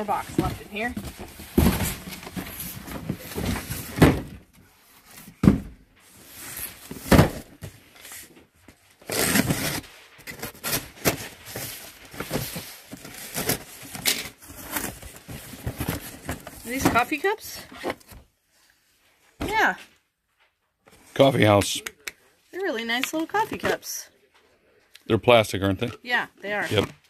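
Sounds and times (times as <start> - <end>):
cardboard box thumps: 0.3 - 4.4, 5.3 - 5.8, 6.9 - 7.8.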